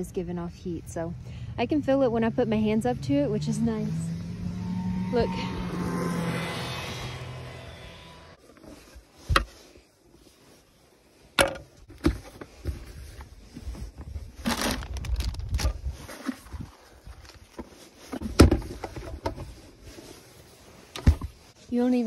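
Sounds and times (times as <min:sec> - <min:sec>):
plastic bags rustling: 0:12.2 - 0:18.1.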